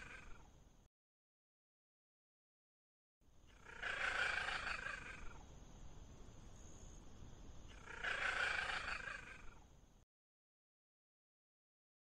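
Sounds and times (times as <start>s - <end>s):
wild cat hissing and snarling: 0.0s - 0.4s, 3.5s - 5.4s, 7.7s - 9.6s.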